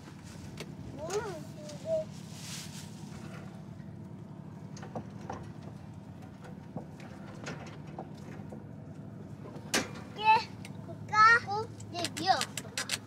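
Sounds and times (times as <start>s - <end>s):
steady low hum: 0.0s - 13.0s
metal clicks and knocks: 11.8s - 13.0s.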